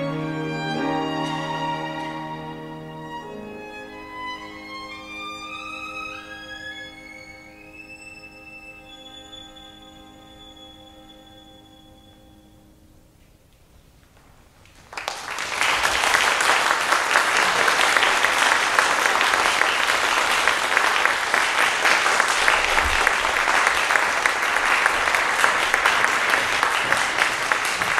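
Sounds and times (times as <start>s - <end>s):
audience applause: 0.6s - 2.7s, 14.7s - 27.9s.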